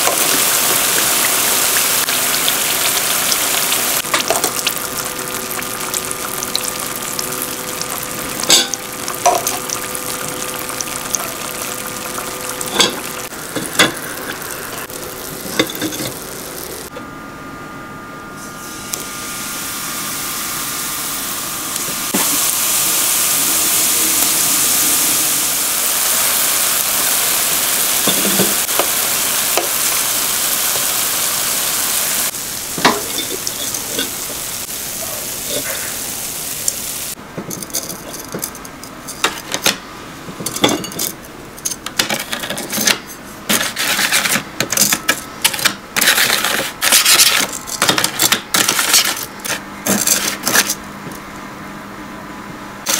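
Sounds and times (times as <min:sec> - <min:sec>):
dough sizzling in hot oil: 0:00.0 - 0:16.9, 0:18.6 - 0:37.2, 0:43.5 - 0:44.4, 0:45.0 - 0:49.5
scraping in sugar tray: 0:43.5 - 0:44.5.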